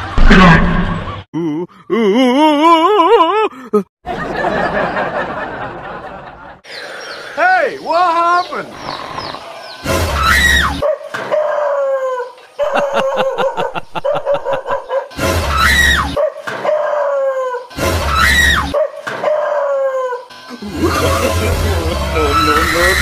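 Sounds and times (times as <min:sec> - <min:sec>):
dog yelping and howling: 0:10.2 - 0:20.3.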